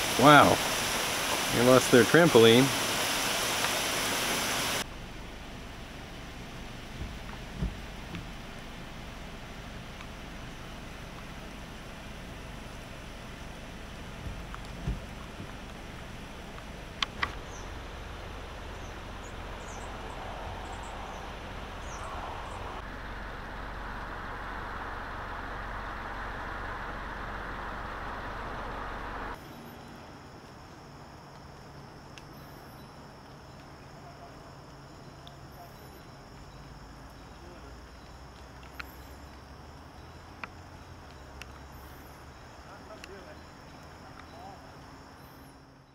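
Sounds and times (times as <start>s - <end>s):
insects chirping: 0.0s - 45.9s
rain: 0.0s - 45.9s
wind: 0.0s - 45.9s
low even hum: 4.8s - 30.3s.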